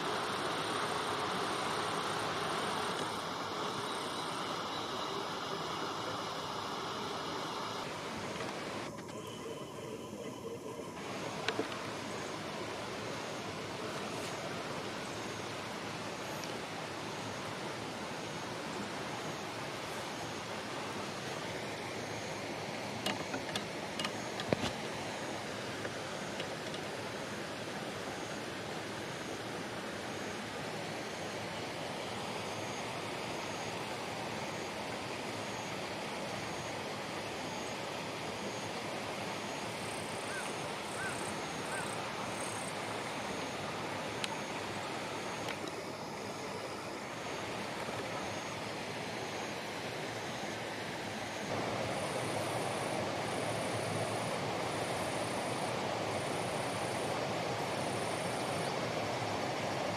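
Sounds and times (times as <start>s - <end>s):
light rain on leaves: 0.0s - 9.0s, 11.0s - 37.8s.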